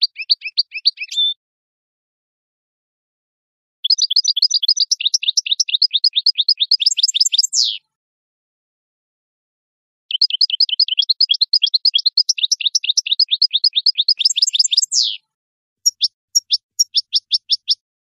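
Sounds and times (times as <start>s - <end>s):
goldfinch singing: 0.0s - 1.4s, 3.8s - 7.8s, 10.1s - 15.2s, 15.8s - 17.8s.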